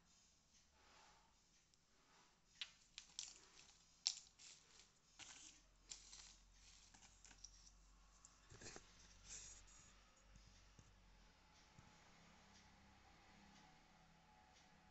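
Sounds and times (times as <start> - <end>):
plastic packaging crinkling: 2.6 - 7.7.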